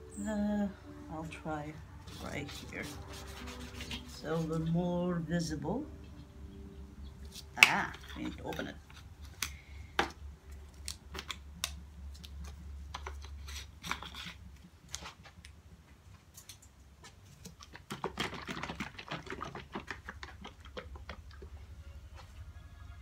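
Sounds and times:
canister clicks and scrapes: 12.9 - 15.1.

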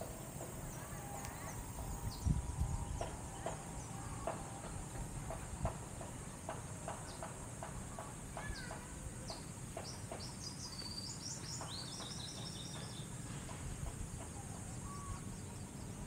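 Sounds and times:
breeze and sea rushing: 0.0 - 3.3
birds chirping trills: 0.0 - 4.3
constant high hiss: 0.0 - 16.0.

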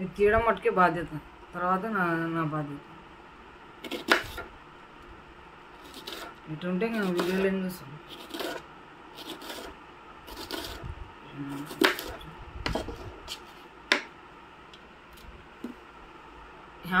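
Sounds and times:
knife scraping and chopping fish: 5.8 - 6.4, 8.1 - 8.6, 9.2 - 10.8, 11.6 - 13.7.

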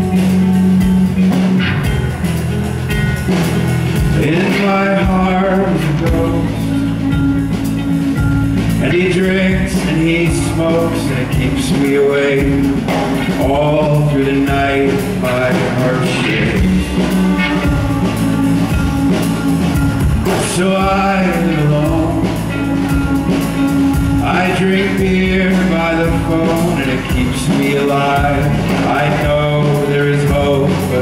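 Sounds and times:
acoustic guitar: 0.0 - 31.0
man singing: 4.0 - 31.0.

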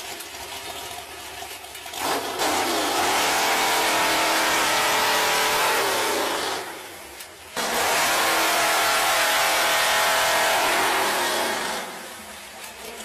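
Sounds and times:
chainsaw cutting log: 2.0 - 6.7, 7.6 - 12.1
engine driving a chainsaw: 2.0 - 6.8, 7.6 - 12.2.

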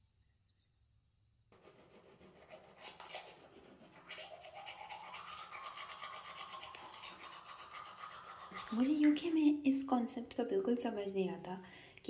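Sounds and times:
toothbrush scrubbing teeth: 1.6 - 9.6.

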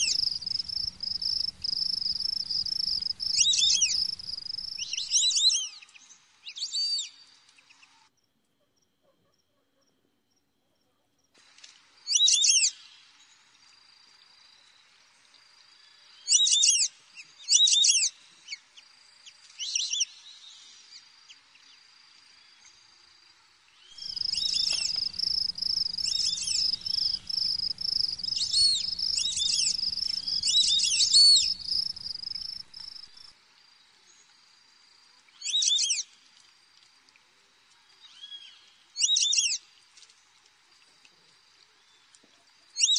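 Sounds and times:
small animal chirps: 0.0 - 5.6, 24.0 - 33.3
low rumble: 24.0 - 33.2
steady high whine: 24.0 - 33.3.

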